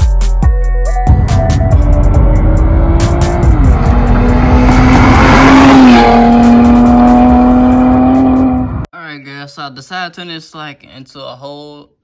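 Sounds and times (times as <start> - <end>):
car engine driving at speed: 1.8 - 8.9
tyre and road noise: 1.9 - 8.8.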